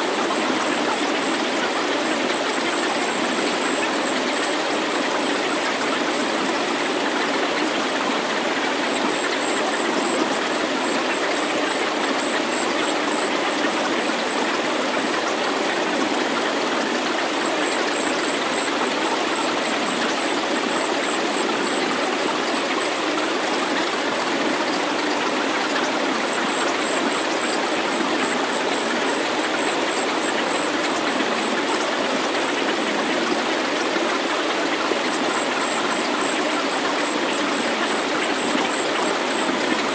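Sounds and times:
thin high whistle: 0:31.3 - 0:39.9.

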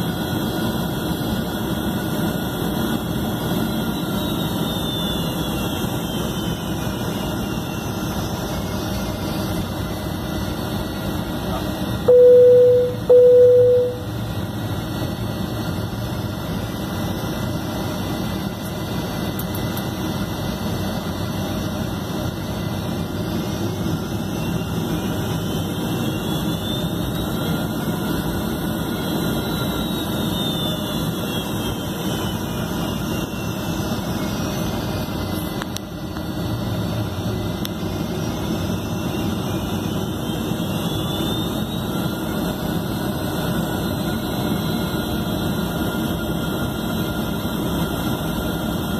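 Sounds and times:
jet engines rumbling: 0:00.0 - 0:48.9
faint high whine: 0:10.6 - 0:15.0, 0:21.8 - 0:48.9
short low beeps: 0:12.0 - 0:14.2.

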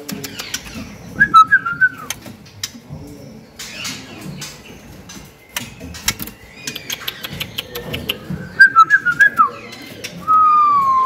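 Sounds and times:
bird whistling song: 0:00.2 - 0:02.2, 0:05.5 - 0:11.0.

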